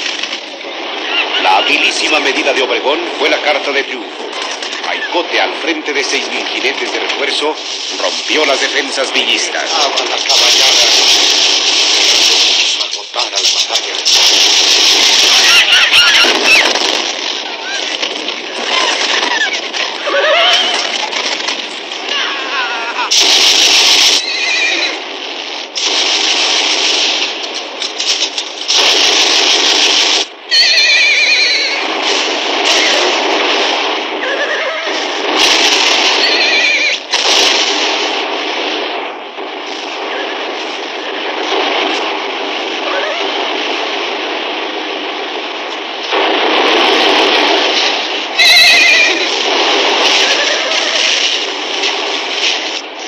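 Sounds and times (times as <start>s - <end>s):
explosion blasts: 0.0s - 53.0s
horses neighing: 0.9s - 1.9s, 15.2s - 16.9s, 18.6s - 21.1s, 24.2s - 25.0s, 30.5s - 31.9s, 34.2s - 35.2s, 48.4s - 49.4s, 50.1s - 51.4s
battle din: 48.4s - 51.2s.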